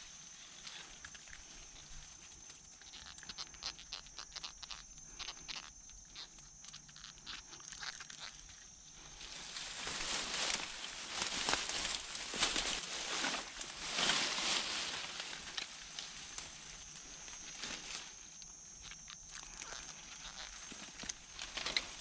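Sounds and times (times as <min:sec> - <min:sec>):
dry leaves and twigs crunching: 0:06.8 - 0:22.0
foliage rustling: 0:09.0 - 0:22.0.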